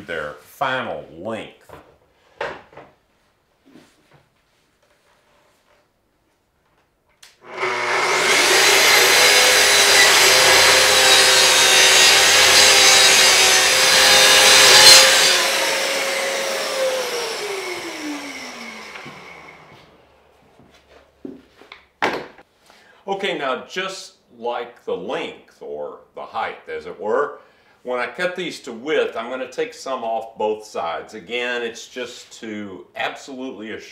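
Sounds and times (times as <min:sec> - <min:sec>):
track saw cutting plywood: 0:07.4 - 0:20.1
saw motor spinning down whine: 0:07.4 - 0:20.3.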